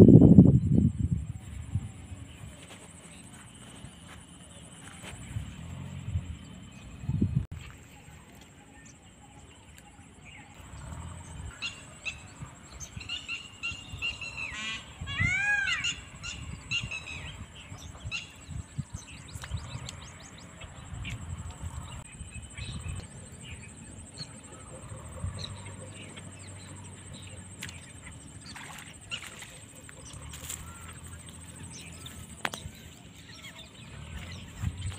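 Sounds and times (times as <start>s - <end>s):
birds chirping and calling: 10.3s - 34.9s.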